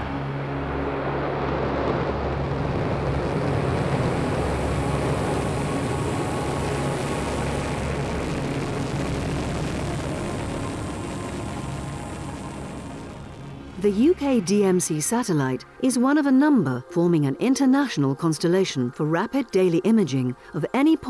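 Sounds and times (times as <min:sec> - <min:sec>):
rocket engine roaring: 0:00.0 - 0:15.4.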